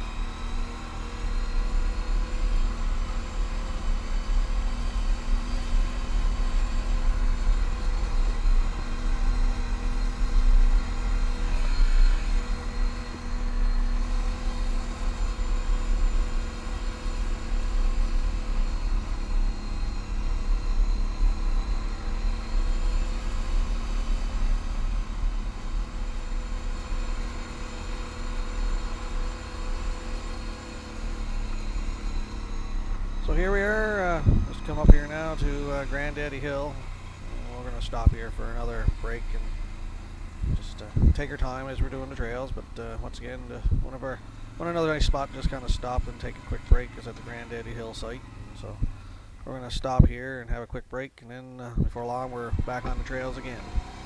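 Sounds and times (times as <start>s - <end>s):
atv engine running: 0.0s - 50.7s, 51.6s - 54.0s
low uneven rumble: 0.0s - 51.0s.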